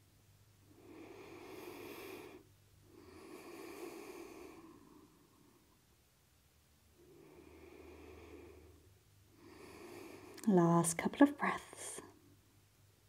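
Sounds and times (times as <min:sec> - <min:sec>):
woman breathing deeply: 0:00.7 - 0:05.8, 0:07.0 - 0:10.4.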